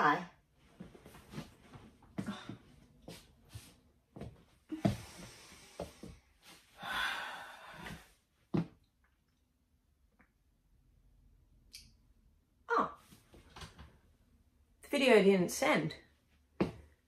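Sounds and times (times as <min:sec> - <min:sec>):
person exhaling heavily: 0:06.8 - 0:08.1.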